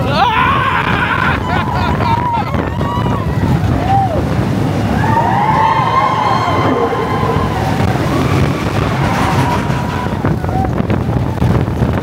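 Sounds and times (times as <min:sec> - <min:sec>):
riders screaming: 0:00.0 - 0:11.0
roller coaster rumbling on track: 0:00.0 - 0:12.0
wind rushing: 0:02.5 - 0:12.0.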